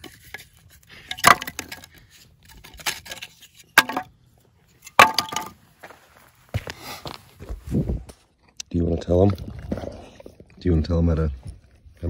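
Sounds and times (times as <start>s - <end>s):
firewood knocks and cracks: 1.1s - 1.9s, 2.6s - 4.1s, 4.8s - 5.6s.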